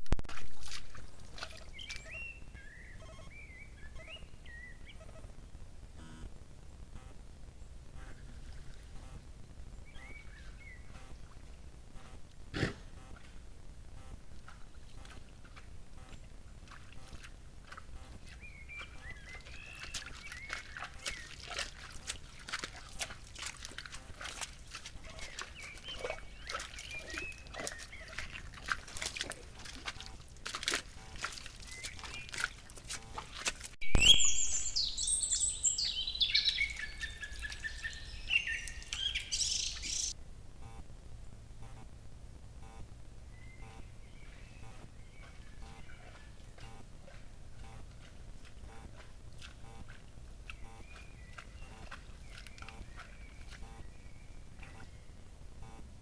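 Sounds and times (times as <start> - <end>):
hooves squelching in mud: 0.0 - 5.4, 7.9 - 40.2, 42.6 - 56.0
faint bird chirps: 1.5 - 5.3, 33.8 - 40.8, 42.7 - 46.8, 49.6 - 55.8
loud songbird singing: 1.7 - 5.0, 18.3 - 21.6, 25.1 - 28.3, 33.8 - 40.2, 50.5 - 55.2.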